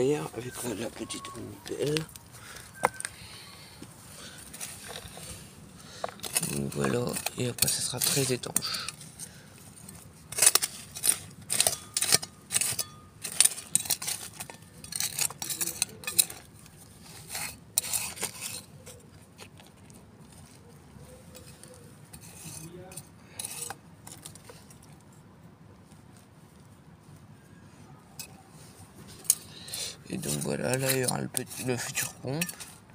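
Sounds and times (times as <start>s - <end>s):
metal shovel scraping soil: 0.0s - 2.6s, 4.0s - 19.1s, 21.3s - 25.0s, 28.2s - 32.9s
shovel clinking on stones: 6.0s - 9.0s, 9.8s - 18.8s, 29.2s - 32.8s.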